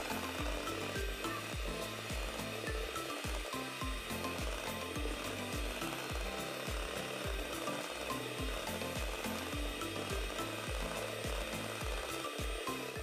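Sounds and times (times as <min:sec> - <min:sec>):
background music with steady beat: 0:00.0 - 0:13.0
electric hand mixer whirring: 0:00.0 - 0:13.0.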